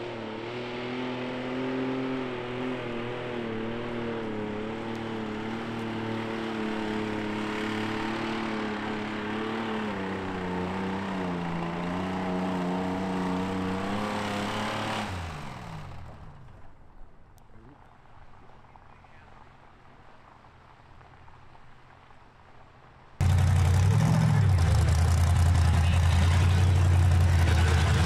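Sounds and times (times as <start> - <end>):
engine at high revs: 0.0 - 16.4, 23.2 - 28.0.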